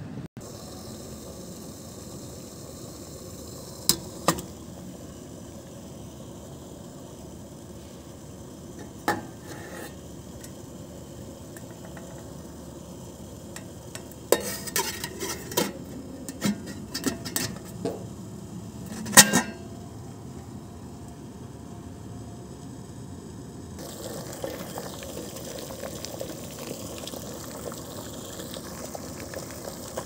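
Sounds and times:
metal lid and pot clinking: 13.6s - 18.0s, 18.9s - 19.6s.

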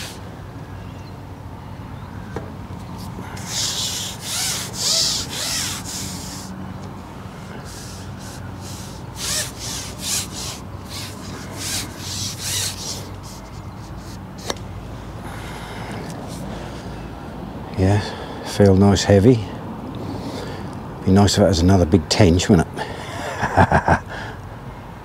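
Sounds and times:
fishing pole rubbing swishes: 0.0s - 0.2s, 3.0s - 6.6s, 7.3s - 14.6s.

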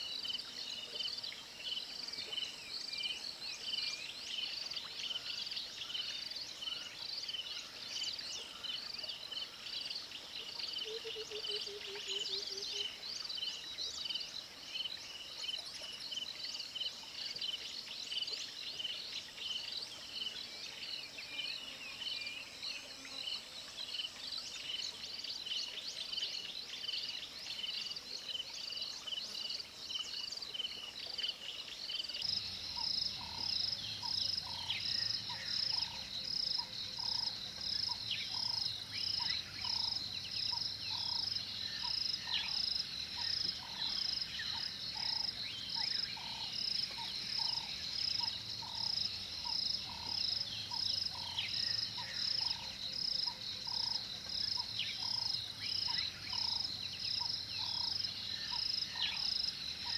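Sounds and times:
high insect chirping: 31.8s - 59.9s.

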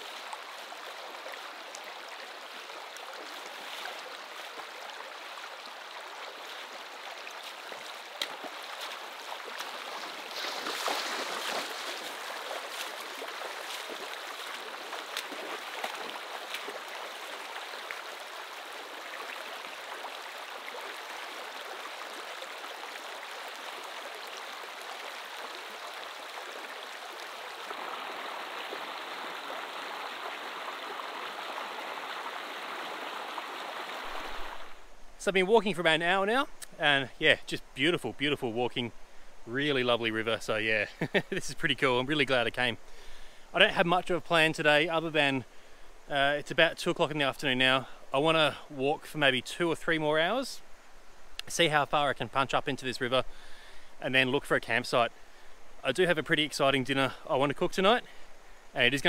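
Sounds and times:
small sharp splashes: 0.0s - 34.8s
river babbling over stones: 0.0s - 35.0s.

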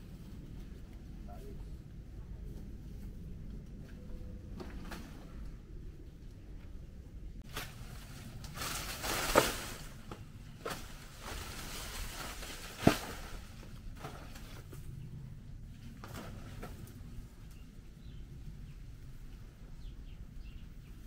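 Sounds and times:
rustling: 7.4s - 14.9s.

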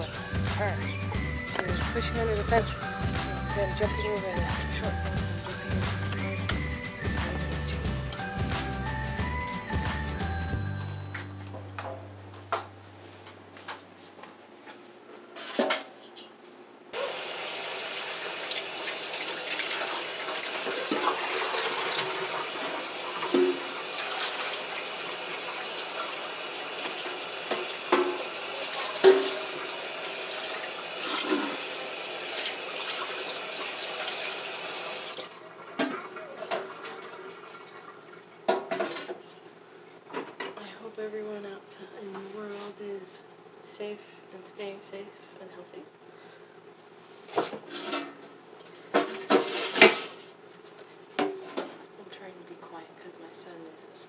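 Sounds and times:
tap running into a sink: 26.8s - 29.6s.

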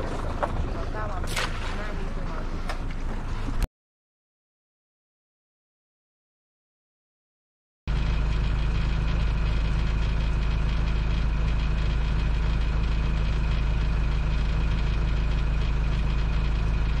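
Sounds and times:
boat engine idling: 0.0s - 3.6s, 7.9s - 17.0s.

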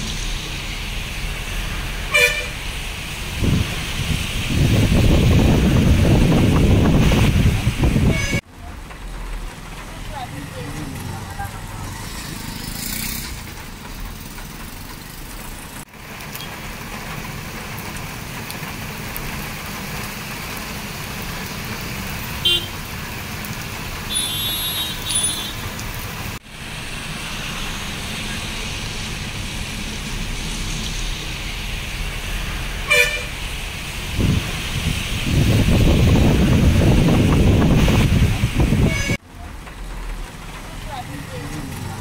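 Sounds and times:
rain and tyres on wet road: 0.0s - 42.0s
car horn toots: 2.1s - 2.6s, 22.4s - 22.7s, 24.1s - 25.6s, 32.9s - 33.3s.

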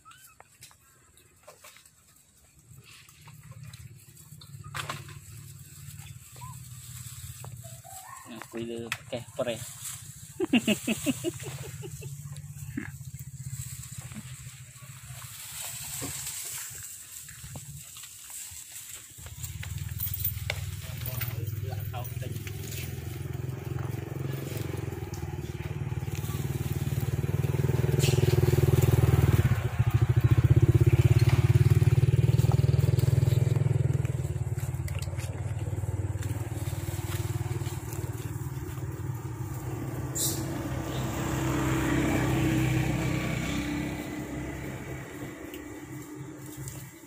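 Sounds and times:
motorcycle engine rumbling: 0.0s - 47.0s.

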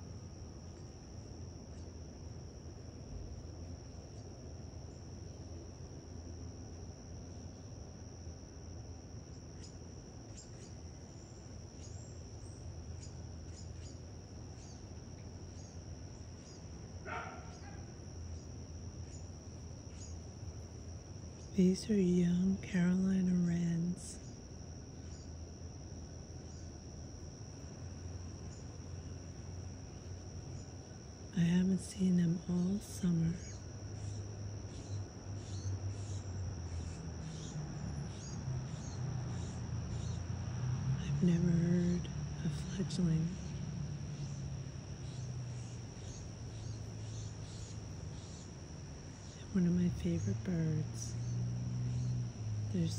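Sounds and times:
crickets trilling: 0.0s - 52.9s
high-pitched insect drone: 31.4s - 52.9s.

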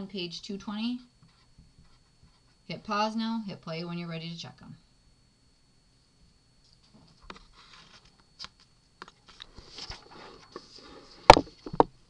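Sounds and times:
paper rustling: 7.2s - 8.6s, 9.2s - 11.4s.

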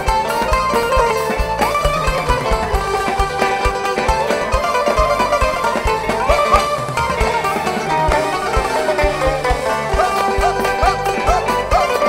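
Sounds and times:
bass line: 0.0s - 12.0s
plucked strings: 0.0s - 12.0s
steady drum beat: 0.0s - 12.0s.

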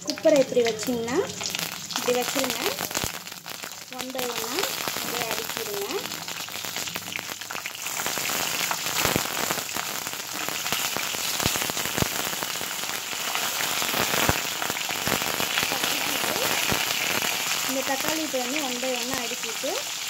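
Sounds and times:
hot oil sizzling and crackling: 0.0s - 20.0s.

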